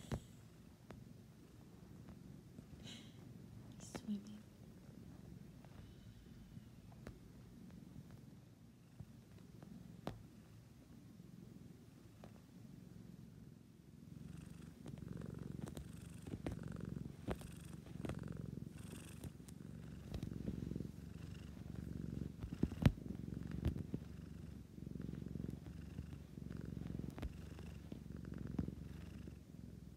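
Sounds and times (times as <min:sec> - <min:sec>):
cat purring: 0:00.0 - 0:29.9.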